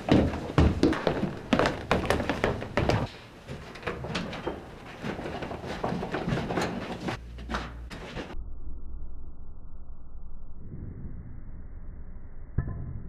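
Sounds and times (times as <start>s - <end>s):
footsteps thudding up stairs: 0.0s - 8.4s.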